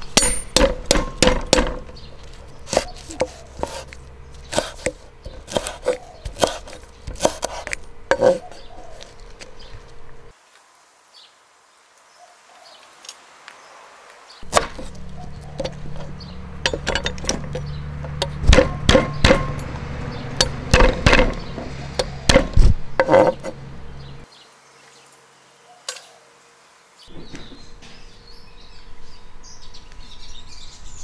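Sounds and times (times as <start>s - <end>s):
sharp knocks and clinks: 0.1s - 2.1s, 14.6s - 23.6s
low hum: 14.4s - 24.2s.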